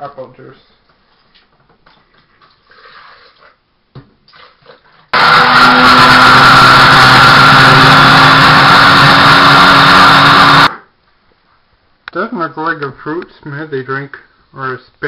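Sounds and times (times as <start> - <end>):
blender running: 5.2 - 10.8.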